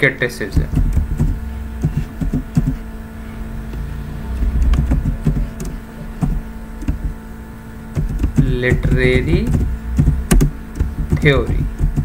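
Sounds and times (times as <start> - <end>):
steady low hum: 0.0 - 12.0
keyboard keys clicking: 0.6 - 2.8, 4.4 - 7.2, 8.0 - 12.0
low rumble: 2.9 - 5.6.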